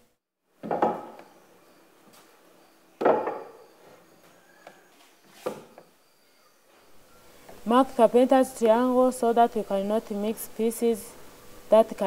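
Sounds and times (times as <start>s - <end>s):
wooden boards knocking on workbench: 0.6s - 1.3s, 3.0s - 3.6s.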